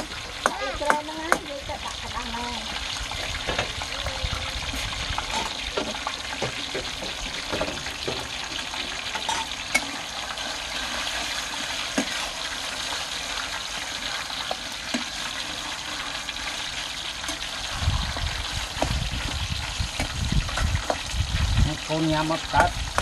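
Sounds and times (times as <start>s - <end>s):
chicken sizzling in a frying pan: 0.0s - 23.0s
metal spatula scraping a pan: 4.8s - 21.6s.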